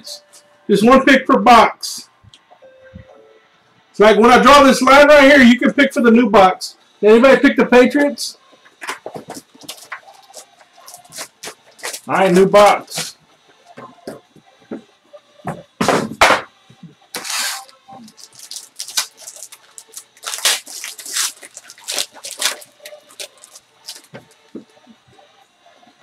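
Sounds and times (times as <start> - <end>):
wrapper crinkling and rustling: 9.6 - 12.1, 17.1 - 24.5.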